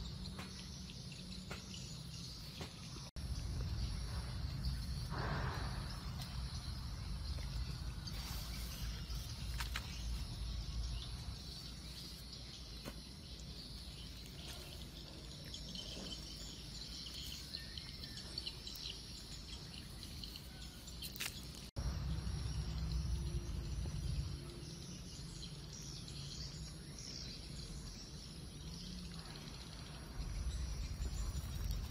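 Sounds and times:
insects chirping: 0:00.0 - 0:31.9.

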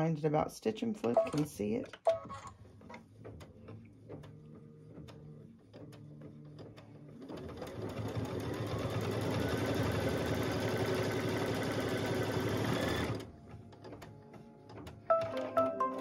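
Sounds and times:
embroidery machine stitching: 0:03.2 - 0:15.6.

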